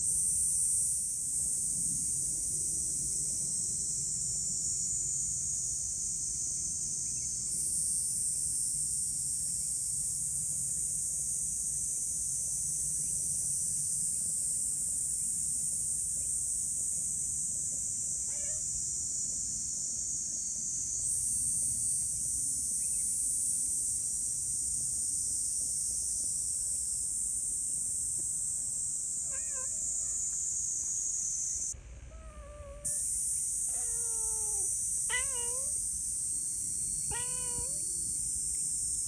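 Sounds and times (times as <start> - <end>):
high-pitched insect drone: 18.2 - 21.8, 29.0 - 39.0
cat meowing: 18.3 - 18.6, 29.3 - 30.4, 32.1 - 33.0, 33.7 - 35.8, 37.1 - 38.0.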